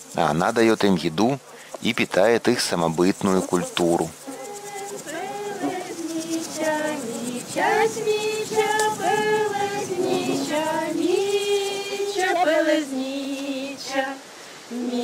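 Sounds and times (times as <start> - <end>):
women singing unaccompanied: 3.5 - 15.0.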